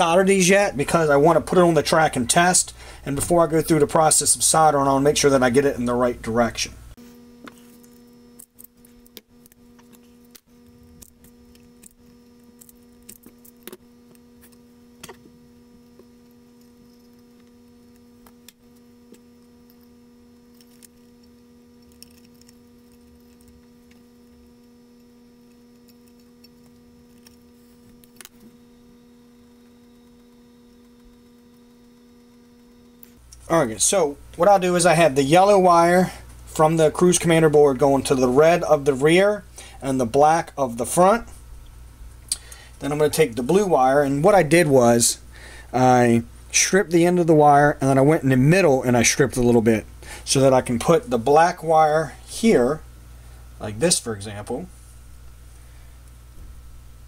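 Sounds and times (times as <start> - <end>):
steady electrical hum: 0.0 - 57.0
clicks of handling small wires: 15.9 - 28.6.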